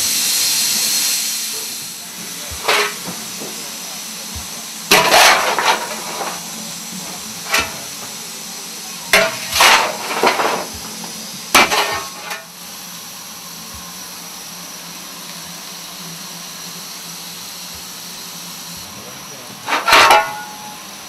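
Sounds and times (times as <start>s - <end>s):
steady rush of locomotive cab noise: 0.0s - 21.0s
shovel scraping and clanking on metal: 2.5s - 3.3s, 4.9s - 6.5s, 7.1s - 8.1s, 9.1s - 10.9s, 11.5s - 12.5s, 19.6s - 20.8s.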